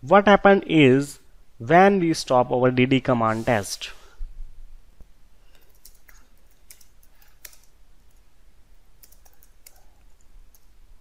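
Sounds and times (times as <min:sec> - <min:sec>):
keyboard typing clicks: 0:05.5 - 0:08.2, 0:09.0 - 0:10.7.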